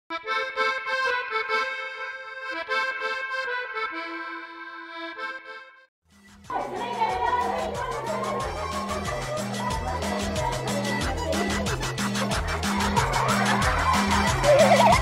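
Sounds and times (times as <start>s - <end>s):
music with repeating bass beat: 7.6s - 15.0s.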